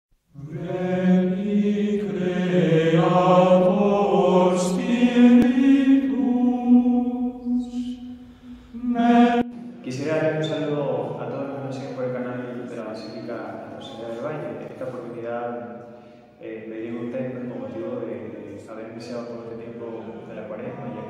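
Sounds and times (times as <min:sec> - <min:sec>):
voices singing religious chant: 0:00.3 - 0:12.9.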